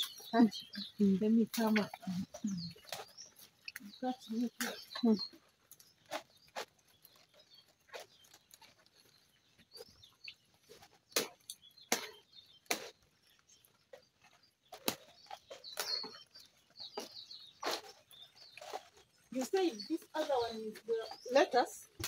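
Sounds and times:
leaves snapping off stalks: 11.1 - 13.0, 14.7 - 16.2.

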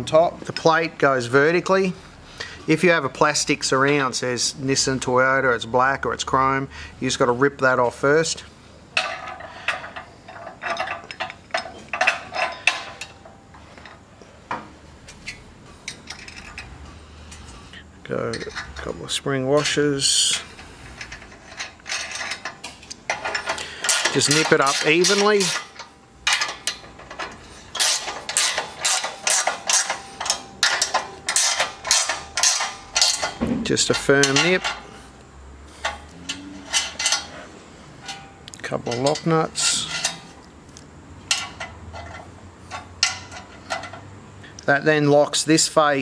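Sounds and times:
metal clamp clinking and scraping: 9.0 - 35.0, 35.7 - 44.1
ratcheting spanner clicks: 19.6 - 34.8.

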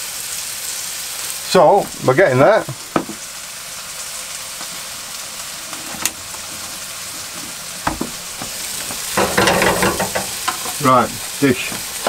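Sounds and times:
food sizzling in a frying pan: 0.0 - 12.0
knocks and rattles: 7.8 - 10.8.

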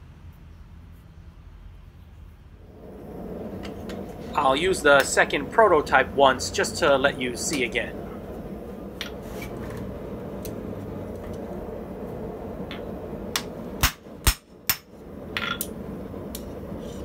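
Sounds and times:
hammer striking metal: 12.7 - 15.7.

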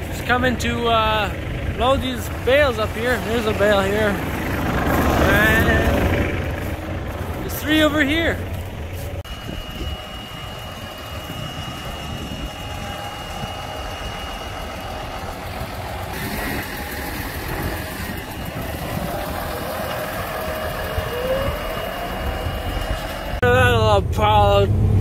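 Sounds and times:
tractor diesel engine running: 0.0 - 25.0
faint steady high whine: 9.1 - 23.5.

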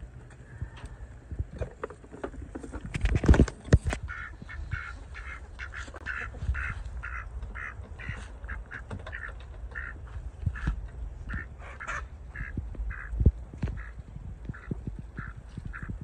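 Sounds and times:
ducks quacking: 3.8 - 16.0.

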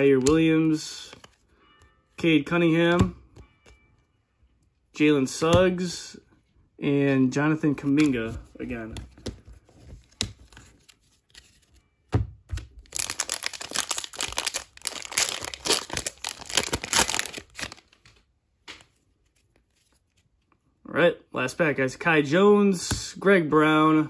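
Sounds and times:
cellophane wrapper tearing and crinkling: 12.8 - 18.2.

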